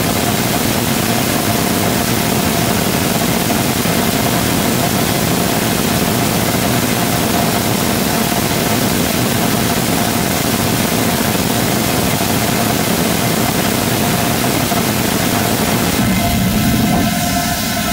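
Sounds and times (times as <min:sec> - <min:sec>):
rocket engine firing: 0:00.0 - 0:17.9.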